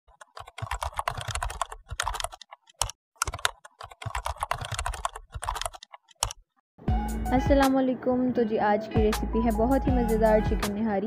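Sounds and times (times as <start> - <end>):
keyboard keystroke clicks: 0.2 - 6.4.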